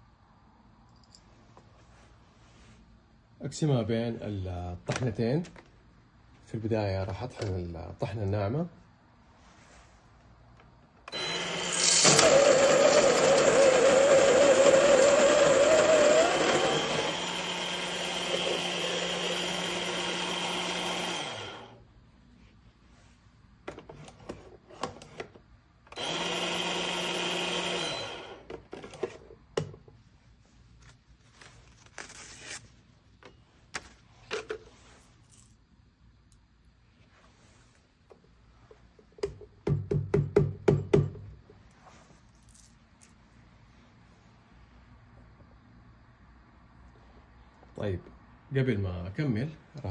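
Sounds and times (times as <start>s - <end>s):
coffee grinder grinding beans: 11.1s - 21.8s, 26.0s - 28.9s.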